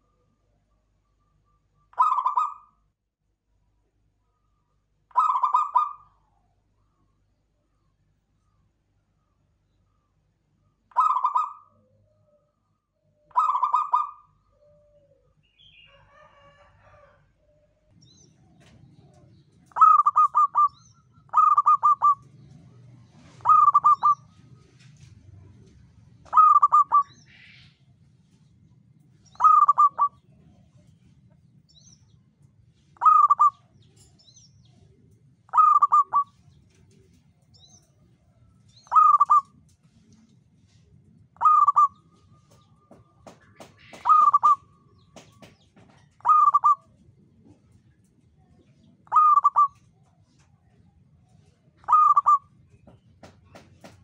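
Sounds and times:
doves cooing: 1.9 - 2.7, 5.1 - 6.2, 10.9 - 12.5, 13.2 - 17.9, 18.5 - 27.7, 29.3 - 30.9, 33.0 - 33.7, 34.7 - 38.0, 38.8 - 39.7, 41.4 - 47.9, 48.8 - 50.0, 51.8 - 54.0.

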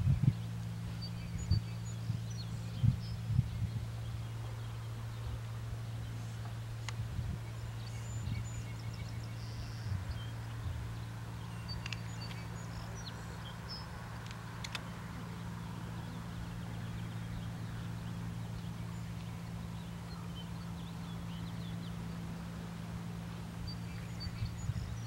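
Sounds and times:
birds chirping: 0.0 - 25.0
soft constant hiss: 0.0 - 25.0
steady low hum: 0.0 - 25.0.

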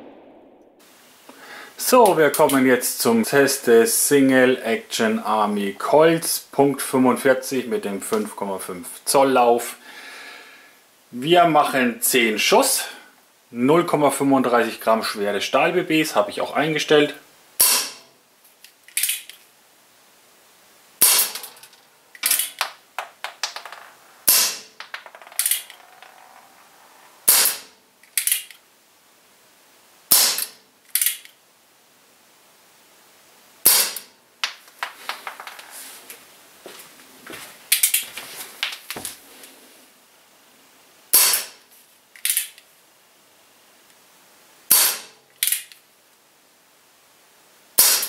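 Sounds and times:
air pistol shots cracking: 17.6 - 18.0, 21.0 - 23.6, 24.2 - 25.8, 27.2 - 28.5, 30.1 - 31.2, 33.6 - 34.6, 41.1 - 41.6, 44.7 - 45.7, 47.8 - 48.0
light revolver clicks: 30.9 - 31.4.

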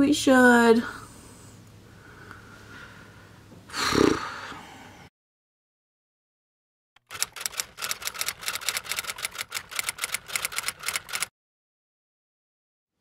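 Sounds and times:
typewriter keystroke clacks: 7.0 - 11.3.

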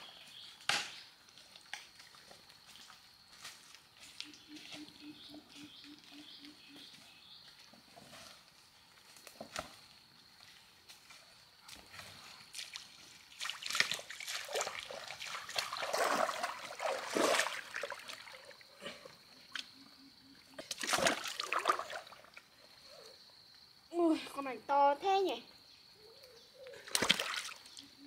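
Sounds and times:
splashing in muddy water: 12.5 - 18.8, 20.6 - 22.5, 26.8 - 27.8.

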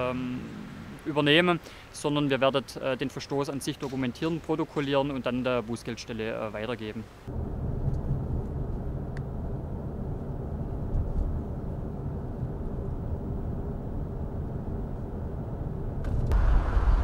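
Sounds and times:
car road and engine rumble: 0.0 - 1.9, 6.8 - 17.0.

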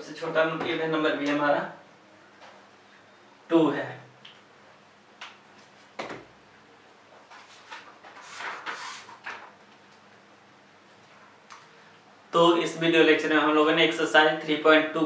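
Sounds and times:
rustling and shuffling: 7.0 - 10.1.

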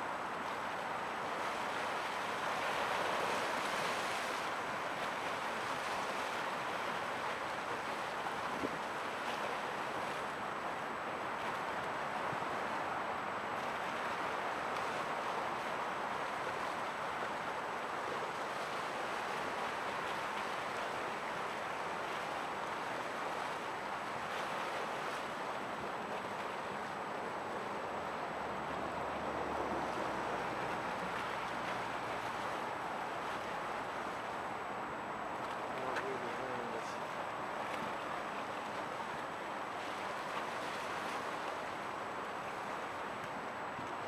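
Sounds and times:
water noise: 0.0 - 44.0
wind: 0.0 - 44.0.

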